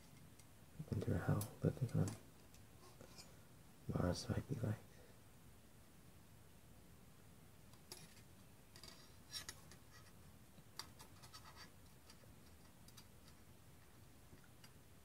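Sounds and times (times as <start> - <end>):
metal parts clicking and scratching: 7.9 - 10.1.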